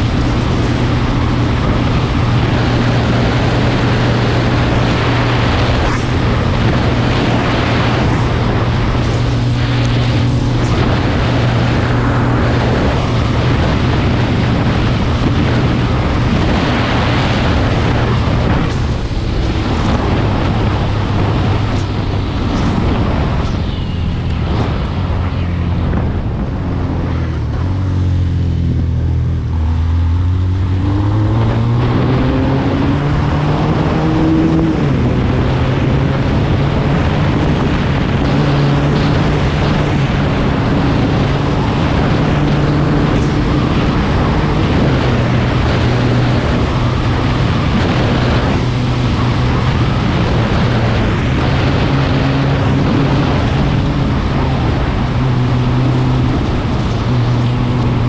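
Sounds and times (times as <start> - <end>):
wind rushing over microphone: 0.0 - 58.0
quad bike engine running: 32.2 - 58.0.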